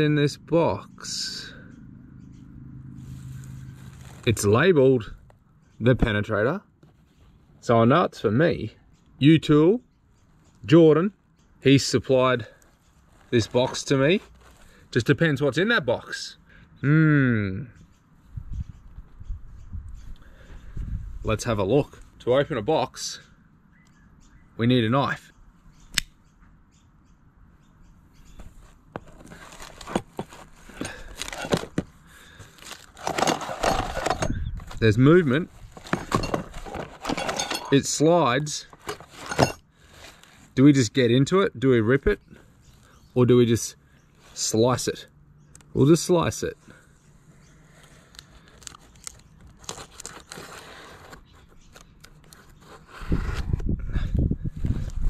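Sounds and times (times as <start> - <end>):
knife scraping cardboard: 28.5 - 31.9, 49.6 - 51.6, 52.2 - 53.6
knife cutting tape and cardboard: 48.0 - 53.6.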